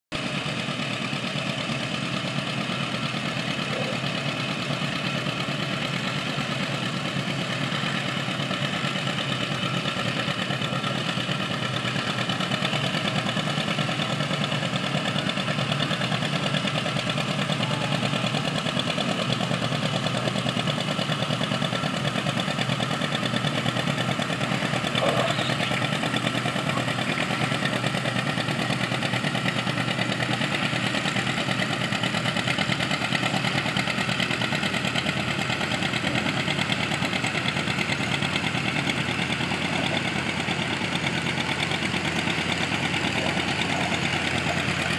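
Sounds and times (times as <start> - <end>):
tractor engine under heavy load: 0.1 - 44.9.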